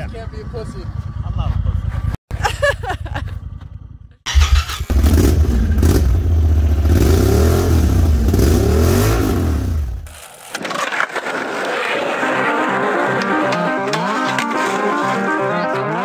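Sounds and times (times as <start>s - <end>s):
engine revving: 4.3s - 10.1s.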